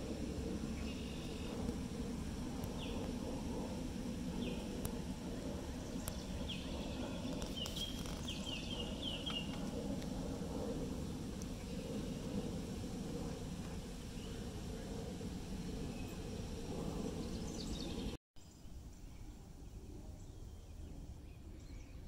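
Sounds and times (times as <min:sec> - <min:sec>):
low background rumble: 0:00.0 - 0:18.2
bird chirping: 0:05.9 - 0:09.6.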